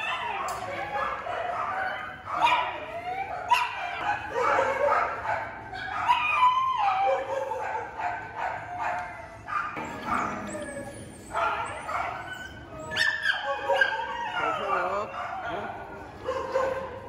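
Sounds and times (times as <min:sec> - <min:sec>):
dogs barking and yipping: 0:00.0 - 0:17.0
dogs whining: 0:05.8 - 0:17.0.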